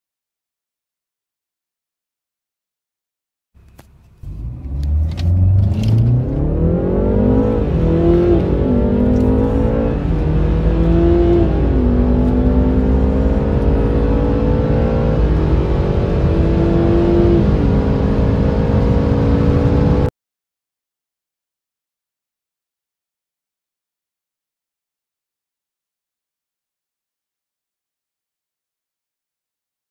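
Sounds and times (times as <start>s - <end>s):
car engines accelerating: 3.6s - 20.1s.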